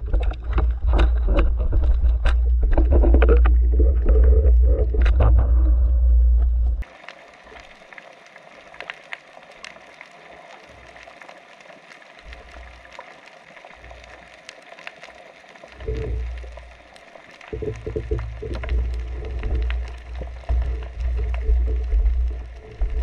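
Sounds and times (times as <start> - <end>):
loud low rumble: 1.5 - 6.8.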